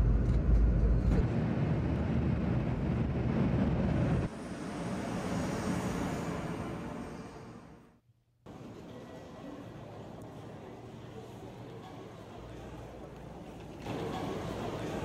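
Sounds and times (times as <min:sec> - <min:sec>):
train hissing past platform: 0:04.3 - 0:07.9.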